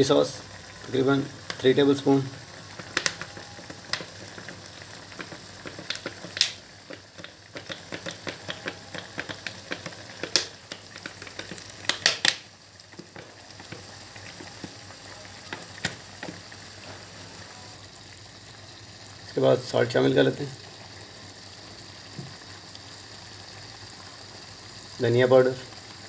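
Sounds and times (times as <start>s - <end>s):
gravy bubbling and popping: 0.0s - 26.0s
sauce bottle splats and clicks: 5.2s - 12.5s.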